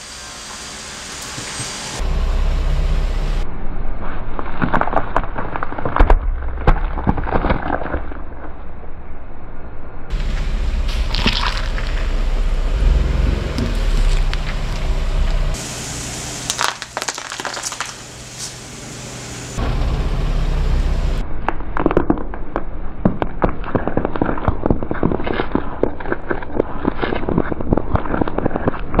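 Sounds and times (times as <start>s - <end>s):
low rumble: 1.8s - 23.1s
gourd crackling under tyre: 10.1s - 15.5s, 16.5s - 18.2s, 21.9s - 29.0s
vegetables crunching under tyre: 10.2s - 12.3s, 16.5s - 18.0s, 21.8s - 29.0s.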